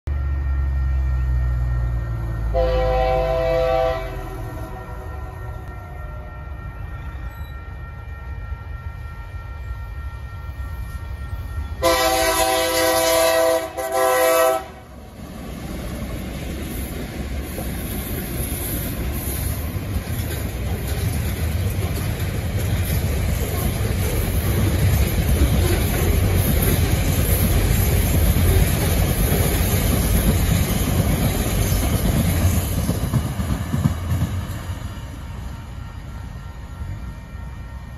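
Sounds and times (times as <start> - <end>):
train chime horn blasts: 0.1 - 15.0, 35.2 - 37.9
freight train rumbling past on rails: 0.1 - 37.9.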